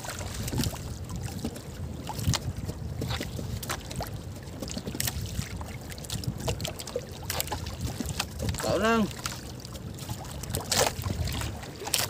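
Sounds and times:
sea water sloshing: 0.0s - 12.0s
wind rumbling on microphone: 0.0s - 12.0s.

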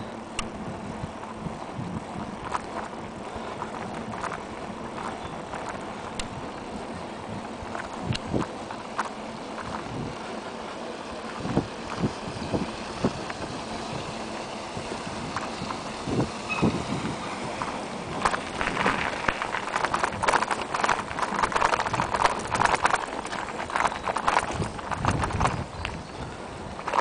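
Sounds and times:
bicycle rattling and clattering: 0.6s - 27.0s.

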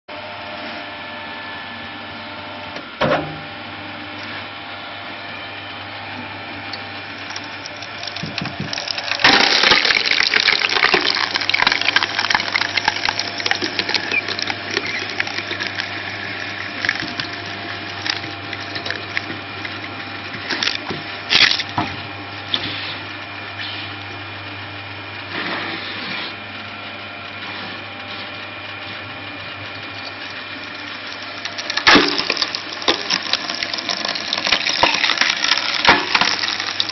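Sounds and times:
log splitter motor humming: 0.1s - 36.9s
wood crackling and splintering: 6.8s - 21.8s, 29.8s - 36.9s
wood cracking sharply: 8.2s - 11.3s, 31.8s - 33.1s.

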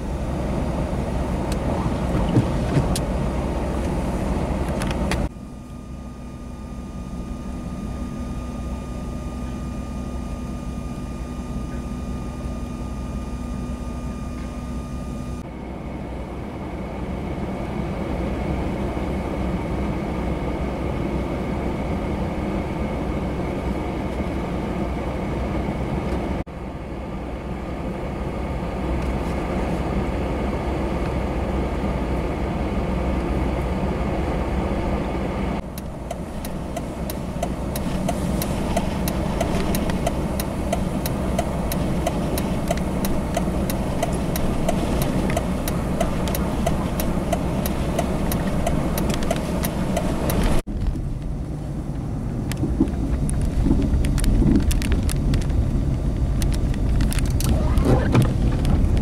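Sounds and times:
blizzard wind: 0.0s - 59.0s
low vehicle rumble: 0.0s - 59.0s
rapid ticking: 35.7s - 50.6s.

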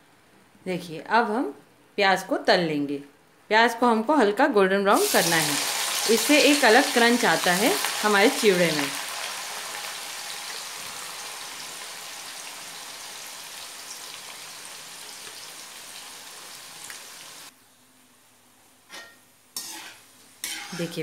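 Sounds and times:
onions sizzling in hot oil: 4.9s - 17.5s, 19.6s - 21.0s.

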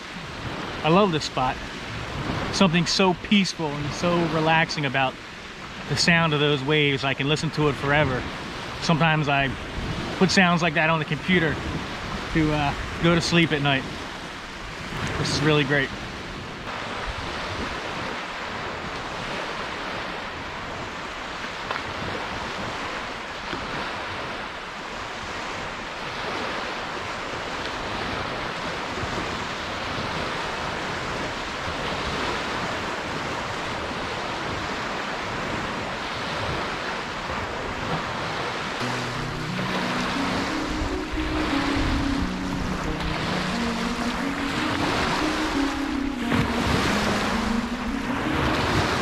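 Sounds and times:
waves breaking on sandy beach: 0.0s - 49.0s
music: 38.8s - 49.0s.

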